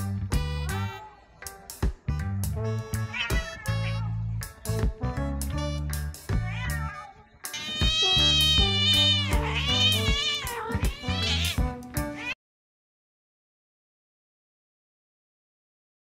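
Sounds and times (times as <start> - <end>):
background music with bass: 0.0 - 6.9, 7.5 - 12.2
cat meowing: 2.8 - 4.2, 6.3 - 12.4.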